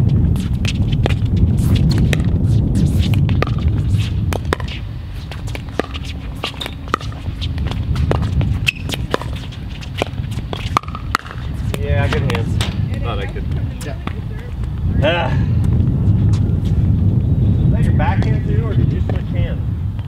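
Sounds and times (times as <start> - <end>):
wind on microphone: 0.0 - 20.0
paddles striking pickleball: 0.6 - 14.7.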